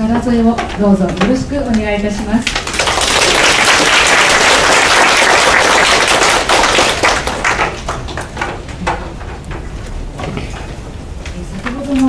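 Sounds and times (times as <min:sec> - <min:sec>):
audience applause: 0:02.5 - 0:08.5.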